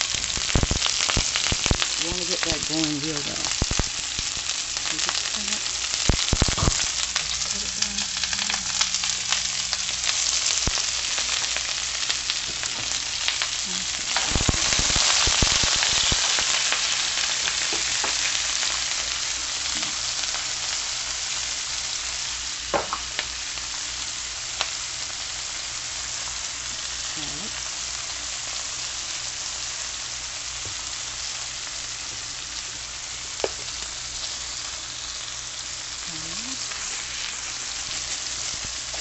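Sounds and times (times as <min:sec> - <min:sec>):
onions sizzling in oil: 0:00.0 - 0:39.0.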